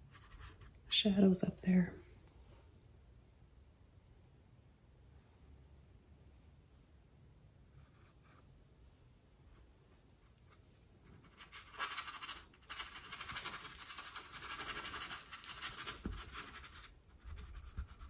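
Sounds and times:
paintbrush scratching on canvas: 0.0 - 0.8, 9.4 - 18.0.

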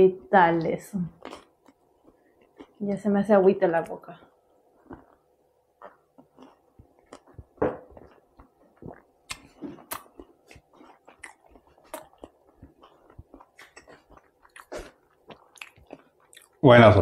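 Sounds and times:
person chewing bread: 1.2 - 2.8, 4.3 - 16.6
wet mouth clicks: 8.4 - 16.6.

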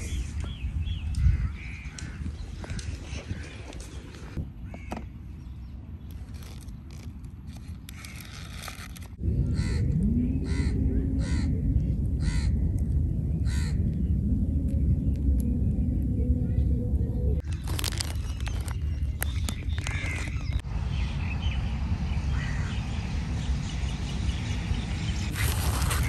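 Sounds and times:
steady low rumble: 9.0 - 26.0
crow cawing: 19.8 - 20.4.

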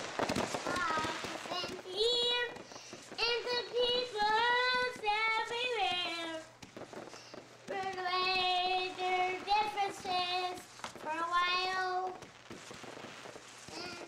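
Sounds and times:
young boy singing: 0.6 - 2.6, 3.2 - 6.5, 7.7 - 12.2, 13.7 - 14.0.

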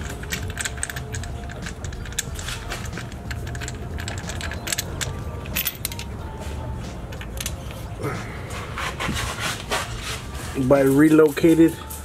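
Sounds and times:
metallic clinking of hand tools: 0.0 - 6.4, 7.1 - 7.9, 10.0 - 12.0.

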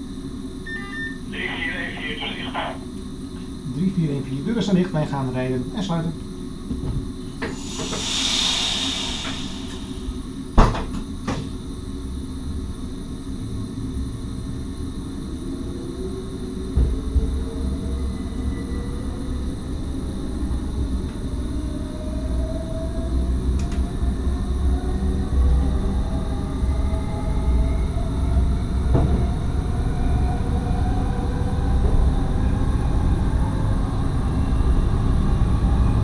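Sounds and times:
low train rumble: 0.0 - 36.0
air hiss: 7.4 - 10.5.

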